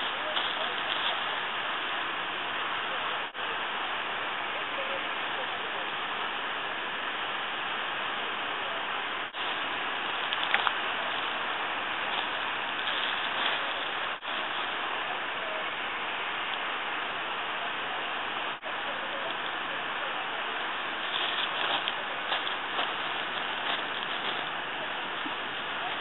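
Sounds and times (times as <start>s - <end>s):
steady background hiss: 0.0s - 26.0s
faint clicks: 10.2s - 11.3s.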